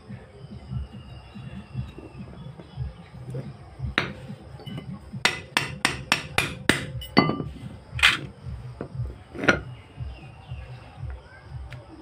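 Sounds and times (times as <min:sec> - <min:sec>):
metallic ringing: 0:04.0 - 0:08.2.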